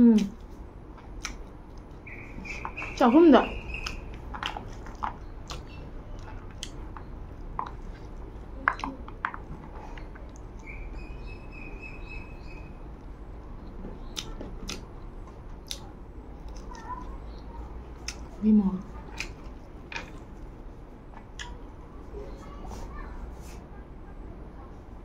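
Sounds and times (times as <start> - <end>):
person chewing food: 0.1 - 21.9
mouth clicks: 1.2 - 9.3, 15.6 - 18.3, 21.4 - 21.6.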